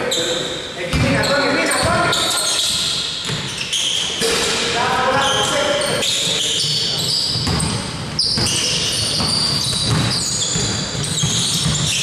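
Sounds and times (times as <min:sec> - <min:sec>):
sneakers squeaking on court: 0:00.0 - 0:12.0
basketball bouncing on floor: 0:07.3 - 0:12.0.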